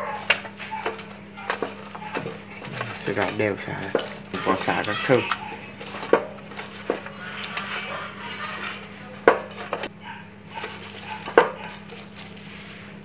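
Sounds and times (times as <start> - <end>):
lemongrass rustling: 0.0 - 9.9, 10.5 - 13.0
clicks and knocks on metal pot: 0.2 - 7.7.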